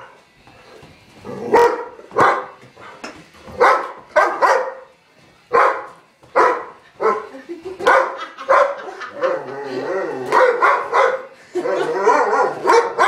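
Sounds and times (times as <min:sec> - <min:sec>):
dog barking: 0:01.5 - 0:02.6, 0:03.6 - 0:04.9, 0:05.5 - 0:08.9, 0:10.3 - 0:13.0.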